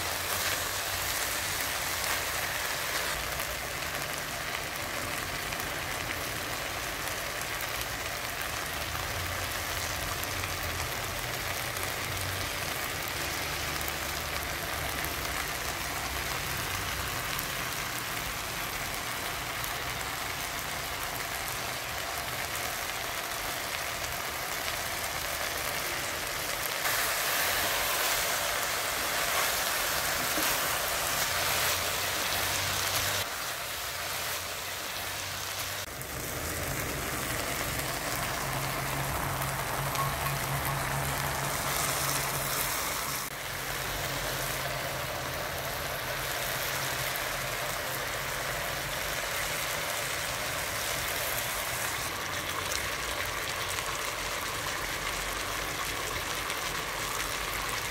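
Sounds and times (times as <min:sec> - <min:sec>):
chicken sizzling in a pot: 0:00.0 - 0:57.9.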